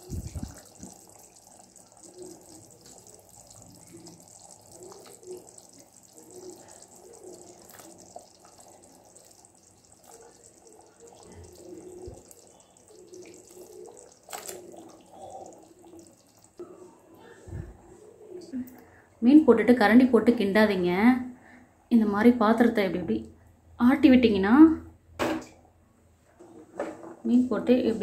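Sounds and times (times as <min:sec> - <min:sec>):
curry bubbles plopping: 0:00.0 - 0:17.0.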